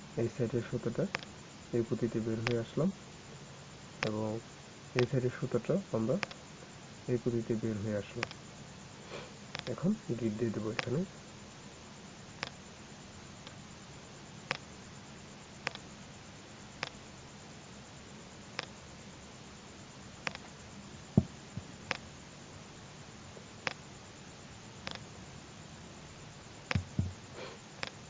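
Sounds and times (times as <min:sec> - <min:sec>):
steady low hum: 0:00.0 - 0:28.0
loud knock: 0:26.7 - 0:27.2.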